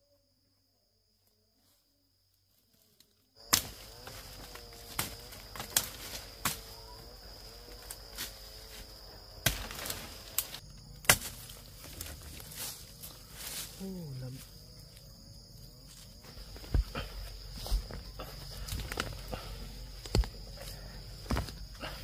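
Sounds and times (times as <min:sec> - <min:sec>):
high-pitched insect drone: 0:03.4 - 0:22.0
sharp snaps and knocks: 0:03.5 - 0:04.2, 0:04.9 - 0:06.7, 0:09.4 - 0:12.4, 0:20.0 - 0:20.4.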